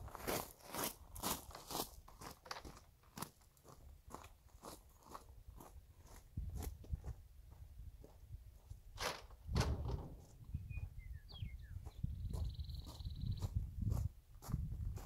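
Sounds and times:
footsteps on gravel: 0.0s - 8.7s
wind on microphone: 6.3s - 8.6s, 9.4s - 15.0s
louder knocks: 9.5s - 10.3s
small bird chirping: 10.4s - 13.6s.

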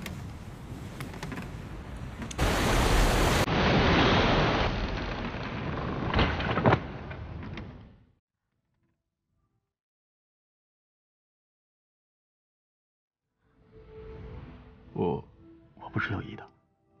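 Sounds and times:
wind: 0.0s - 8.1s
sea waves: 1.6s - 4.9s.

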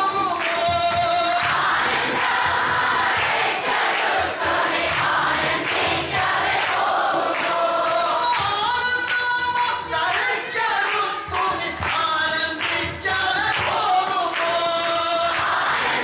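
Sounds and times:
man's voice leading singing: 0.0s - 2.2s, 7.1s - 16.0s
chorus singing a hymn: 0.4s - 8.5s, 13.5s - 16.0s.

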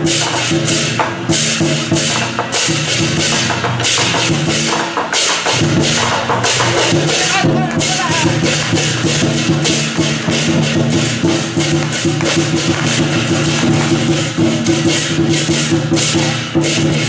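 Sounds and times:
drum gong and cymbals beat: 0.0s - 17.0s.

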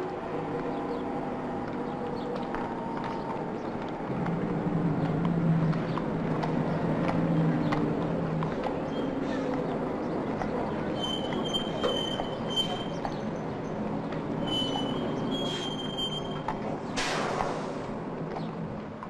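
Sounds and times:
bus engine droning: 0.0s - 19.0s
horse hooves clip-clopping: 0.4s - 15.2s.

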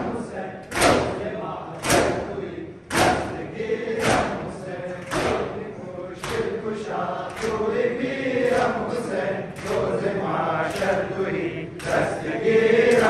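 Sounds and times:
crowd beating chests: 0.0s - 5.6s
men chanting a lament: 0.0s - 13.0s.

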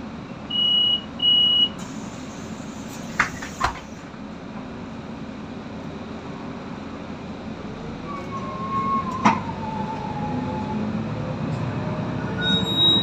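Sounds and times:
bus cabin rumble: 0.0s - 13.0s
drawn-out squeal: 11.8s - 13.0s
short high squeal: 12.2s - 13.0s.

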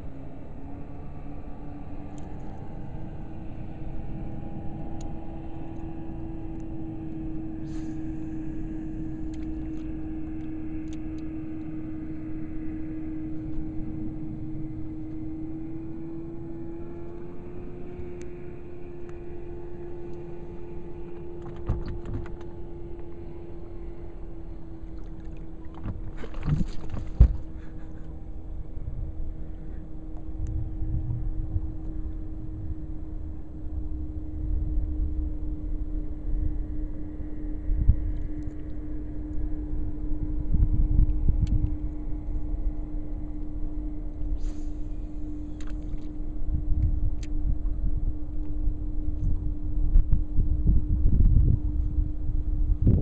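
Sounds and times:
boat motor humming: 0.0s - 53.0s.

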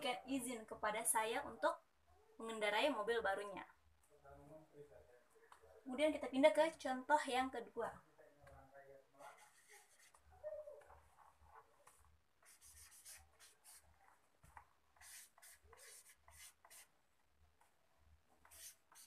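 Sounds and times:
scratching of handwriting: 11.1s - 16.9s, 18.4s - 19.0s.

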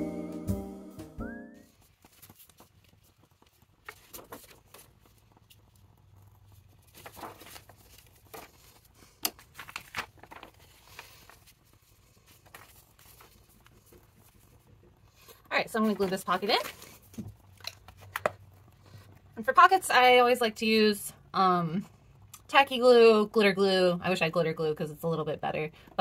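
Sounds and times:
paper pages rustling: 1.7s - 18.4s.

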